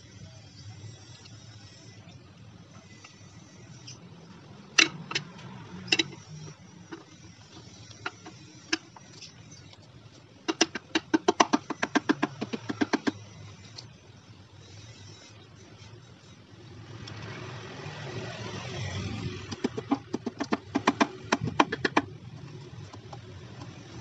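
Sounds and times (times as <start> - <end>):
sharp metal knocks and taps: 4.8 - 6.3, 6.9 - 9.3, 10.5 - 13.2, 19.5 - 22.2.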